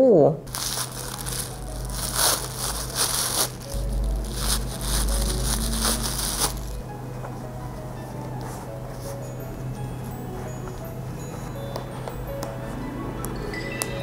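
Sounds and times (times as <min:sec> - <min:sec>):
faint background music: 0:00.0 - 0:14.0
tissue paper crinkling: 0:00.5 - 0:06.8.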